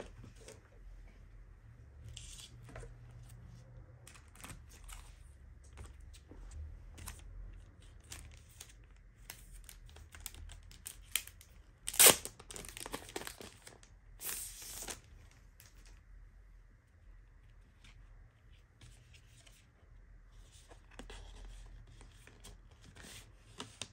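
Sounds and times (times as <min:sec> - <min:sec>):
paper and card packaging rustling: 0:06.9 - 0:15.8.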